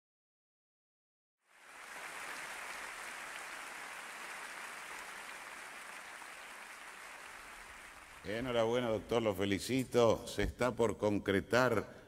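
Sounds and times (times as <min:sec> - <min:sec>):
audience applauding: 0:01.5 - 0:08.6.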